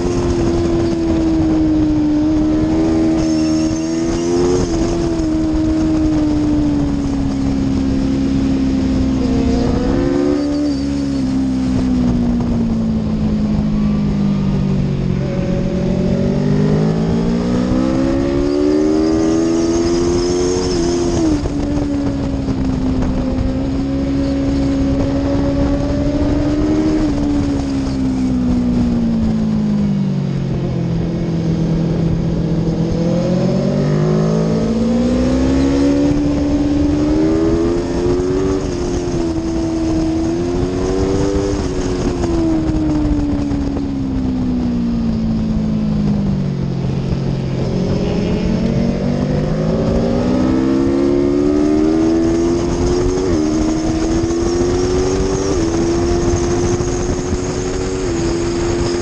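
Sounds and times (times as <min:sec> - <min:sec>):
motorcycle engine revving: 0:00.0 - 0:59.0
wind noise rushing: 0:00.0 - 0:59.0.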